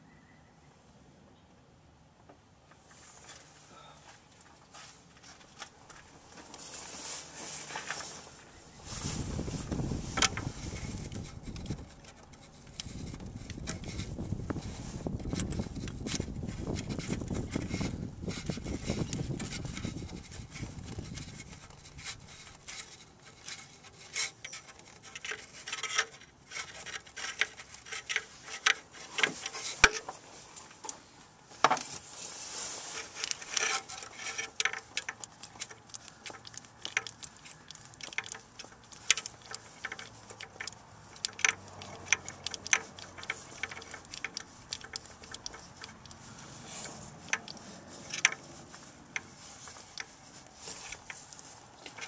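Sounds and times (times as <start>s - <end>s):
metal parts clicking and clinking: 33.0s - 48.5s.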